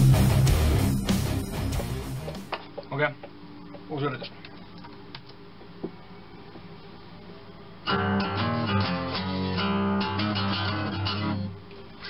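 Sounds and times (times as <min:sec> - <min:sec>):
fast guitar passage: 0:00.0 - 0:02.5, 0:07.9 - 0:11.6.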